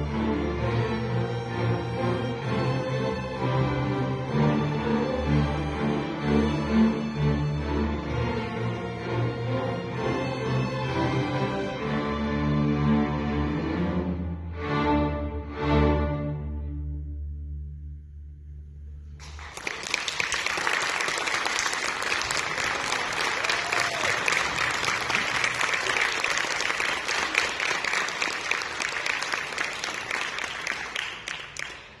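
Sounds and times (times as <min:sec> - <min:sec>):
audience applause: 0:19.2 - 0:32.0.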